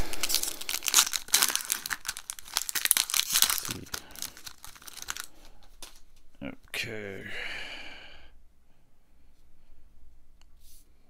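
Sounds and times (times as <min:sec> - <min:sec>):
foil wrapper crinkling: 0:00.0 - 0:06.1.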